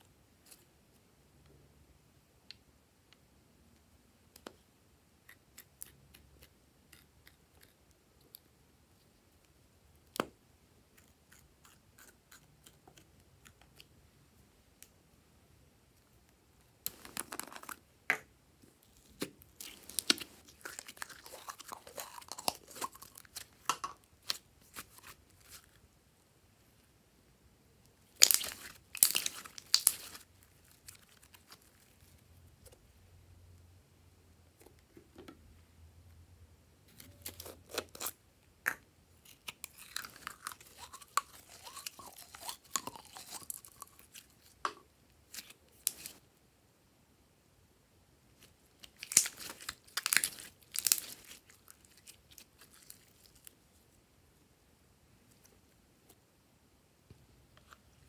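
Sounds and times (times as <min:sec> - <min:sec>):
slime crackling and popping: 0:19.0 - 0:25.6, 0:28.2 - 0:32.0, 0:48.8 - 0:53.5.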